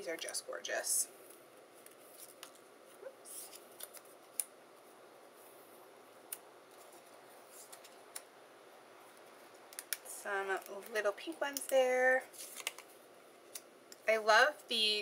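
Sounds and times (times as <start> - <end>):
paper rustling: 1.3 - 4.4, 6.7 - 8.2, 12.3 - 12.9.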